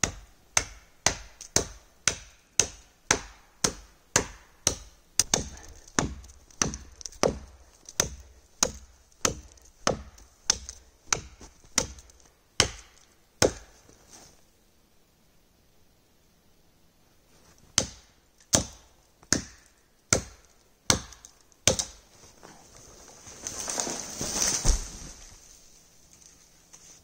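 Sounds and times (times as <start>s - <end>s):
hatchet chopping tree trunk: 0.0s - 13.8s, 17.8s - 22.0s.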